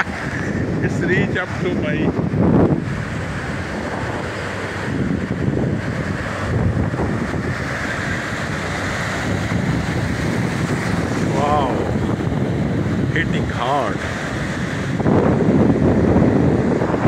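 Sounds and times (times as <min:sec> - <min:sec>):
small waves breaking: 0:00.0 - 0:17.0
wind buffeting microphone: 0:00.0 - 0:17.0.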